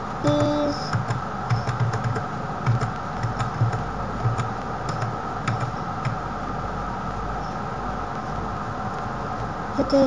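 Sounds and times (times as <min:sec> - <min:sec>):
background hum: 0:00.0 - 0:10.0
keyboard key tapping: 0:00.2 - 0:06.2.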